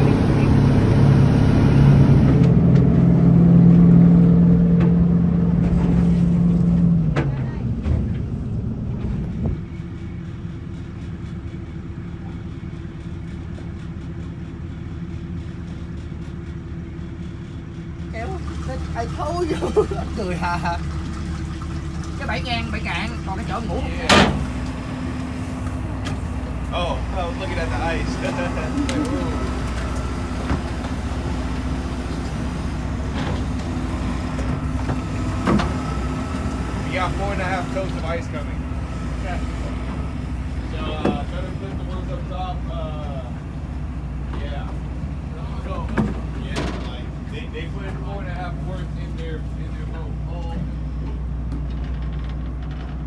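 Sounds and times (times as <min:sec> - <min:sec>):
water noise: 0:00.0 - 0:12.5, 0:18.0 - 0:44.3
boat engine droning: 0:00.0 - 0:53.0.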